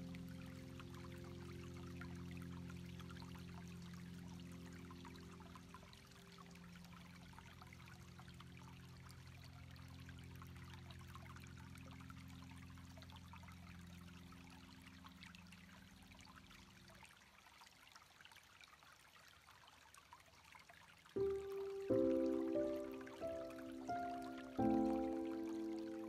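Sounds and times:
low steady hum: 0:00.0 - 0:17.1
water trickling and fizzing: 0:00.0 - 0:26.0.

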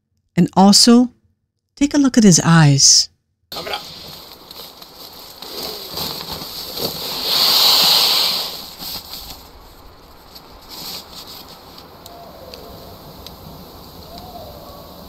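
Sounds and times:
nylon camping gear rustling: 0:03.6 - 0:15.0.

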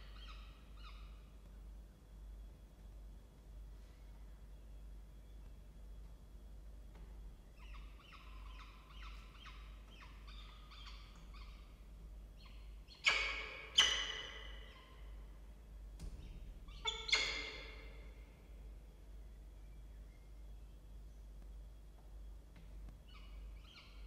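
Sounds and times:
louder bird calls: 0:07.5 - 0:15.4, 0:16.2 - 0:18.6.

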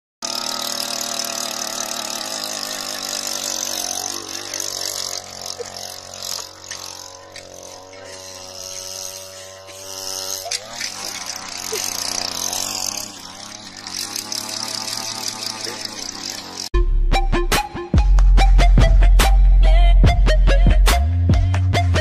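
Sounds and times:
small petrol engine running: 0:00.2 - 0:16.8.

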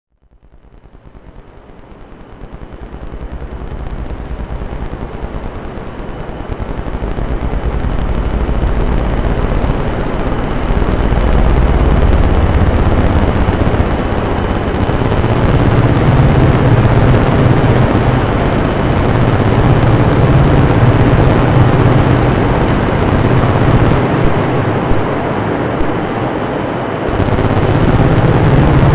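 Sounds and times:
crackling rumbling synthesizer noise: 0:00.1 - 0:28.9
deep low hum: 0:06.5 - 0:24.0, 0:27.1 - 0:28.9.

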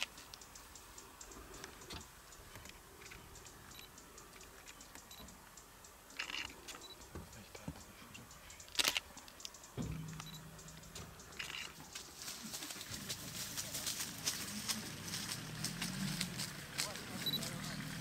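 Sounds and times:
faint small clicks and ticks: 0:00.0 - 0:12.3.

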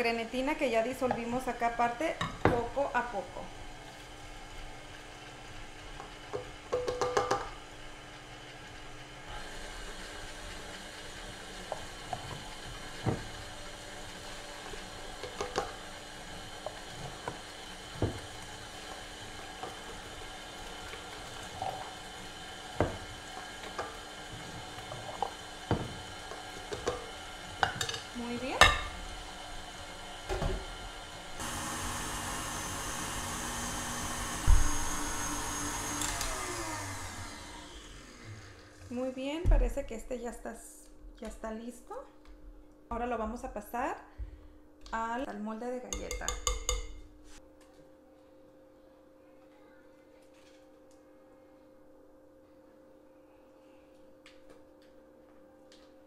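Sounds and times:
stand mixer running: 0:03.5 - 0:27.8, 0:29.0 - 0:38.9
thump: 0:34.4 - 0:34.7.

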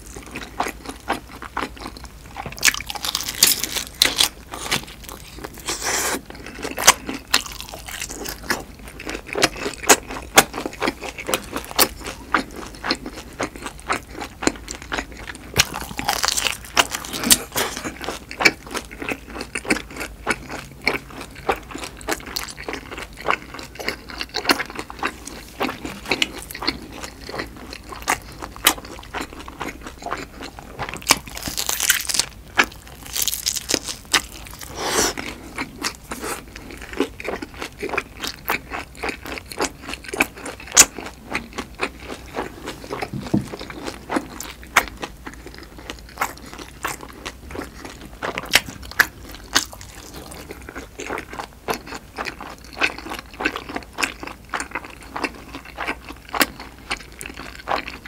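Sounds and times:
person chewing crunchy food: 0:00.0 - 0:58.0.

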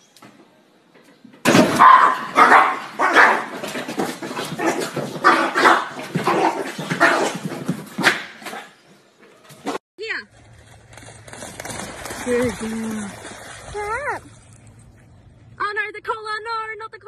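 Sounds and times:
small dog barking: 0:01.8 - 0:03.5, 0:05.2 - 0:07.3.

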